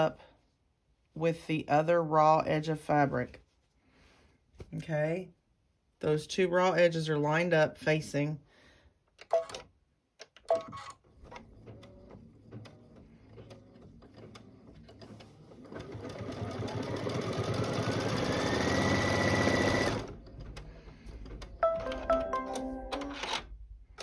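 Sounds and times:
embroidery machine stitching: 10.7s - 21.4s.

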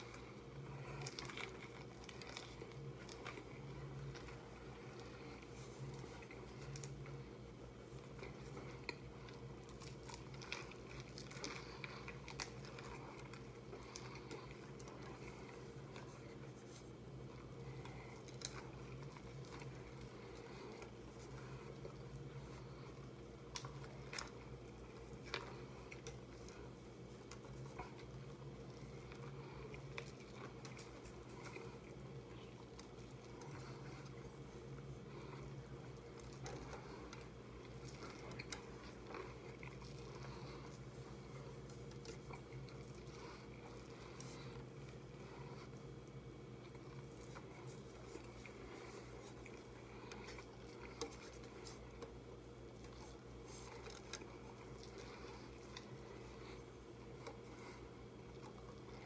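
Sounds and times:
mouth chewing food: 0.0s - 59.0s.

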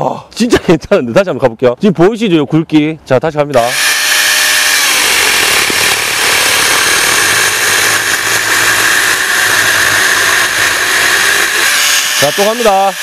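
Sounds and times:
chainsaw cutting through log: 3.6s - 13.0s.

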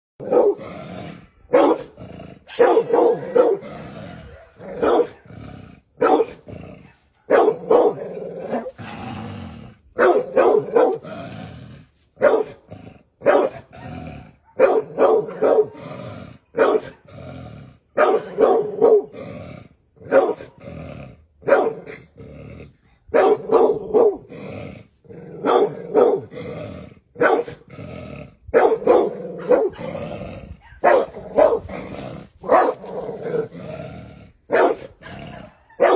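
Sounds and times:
large dog barking: 0.2s - 9.3s, 9.9s - 11.3s, 12.2s - 17.1s, 17.9s - 19.2s, 20.0s - 20.6s, 21.4s - 22.2s, 23.1s - 24.3s, 25.1s - 26.4s, 27.1s - 27.7s, 28.5s - 35.9s.

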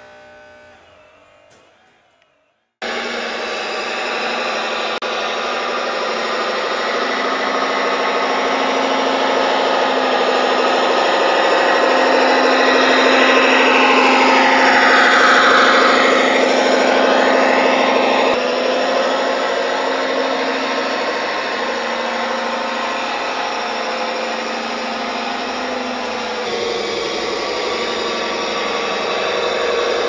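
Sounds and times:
model truck motor humming: 0.0s - 30.0s.

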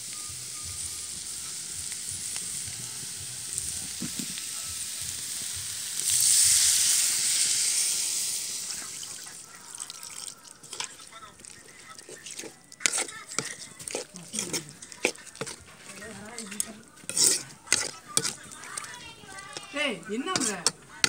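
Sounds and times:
water hissing in hot pan: 0.0s - 10.8s
masala sizzling in a pan: 0.0s - 21.0s.

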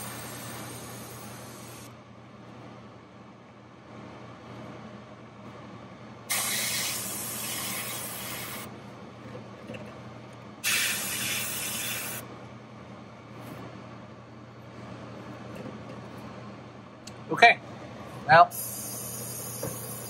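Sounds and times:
airbrush spraying hiss: 0.0s - 1.9s, 6.3s - 8.7s, 10.6s - 12.2s.

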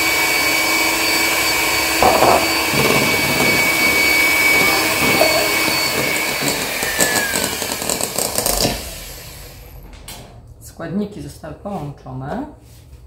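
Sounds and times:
electric hand mixer whining: 0.0s - 9.8s.

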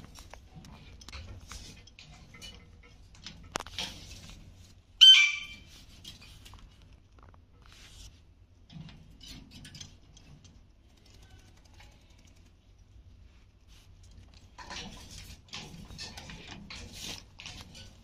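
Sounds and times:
parakeet squawk: 5.0s - 5.6s.

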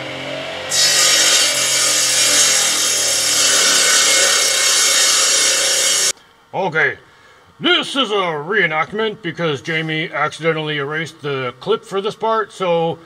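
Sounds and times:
saw blade hissing through wood: 0.7s - 6.1s.

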